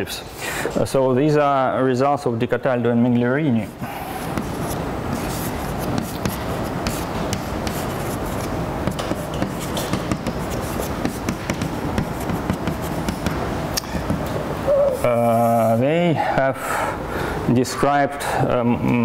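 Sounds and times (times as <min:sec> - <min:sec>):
chalk scratching on blackboard: 0:03.6 - 0:13.4
chalk tapping on blackboard: 0:04.1 - 0:14.4.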